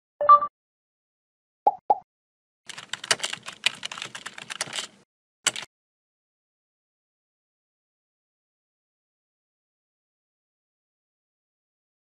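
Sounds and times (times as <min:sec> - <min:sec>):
keyboard typing: 0:02.7 - 0:05.7.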